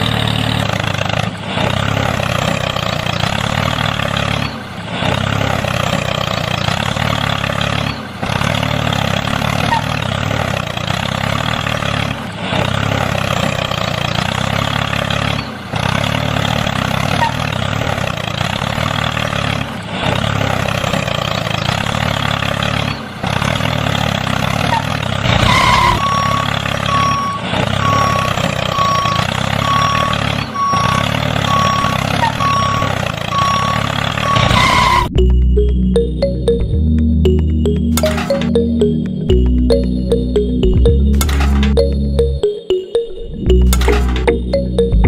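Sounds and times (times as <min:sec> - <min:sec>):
small tractor motor running: 0:00.0 - 0:35.7
reversing beeper: 0:25.4 - 0:45.0.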